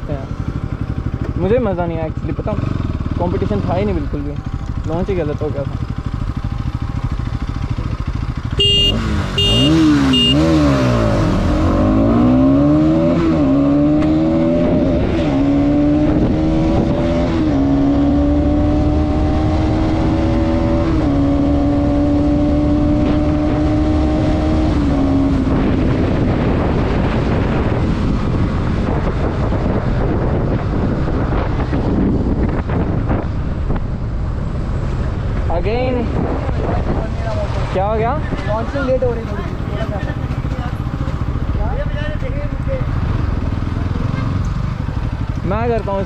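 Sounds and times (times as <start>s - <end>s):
motorcycle engine revving through gears: 0.4s - 46.0s
wind noise: 3.6s - 42.3s.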